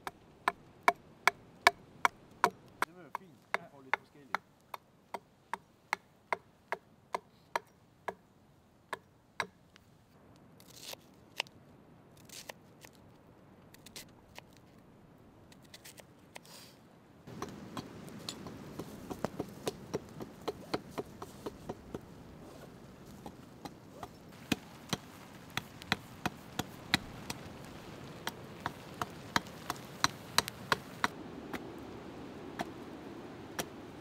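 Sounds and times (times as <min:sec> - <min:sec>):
hatchet chopping wood: 0:00.0 - 0:08.2, 0:08.9 - 0:09.6, 0:17.3 - 0:22.0, 0:23.2 - 0:27.4, 0:28.2 - 0:31.7
knife scraping wood: 0:10.6 - 0:11.5, 0:15.5 - 0:16.6
loud steady hiss: 0:16.4 - 0:34.0.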